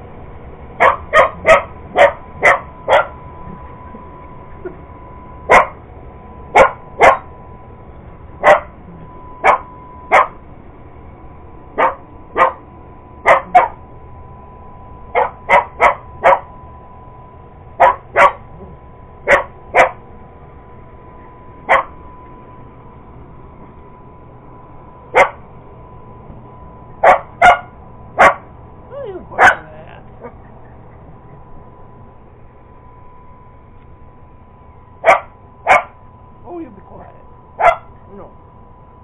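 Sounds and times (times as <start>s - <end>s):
faint steady tone: 0.0s - 39.0s
dog barking: 0.8s - 3.2s, 5.5s - 5.8s, 6.6s - 7.3s, 8.4s - 8.8s, 9.4s - 10.4s, 11.8s - 12.6s, 13.2s - 13.8s, 15.2s - 16.5s, 17.8s - 18.5s, 19.3s - 20.0s, 21.7s - 22.0s, 25.2s - 25.4s, 27.0s - 28.5s, 29.4s - 30.4s, 35.0s - 36.0s, 37.6s - 38.0s.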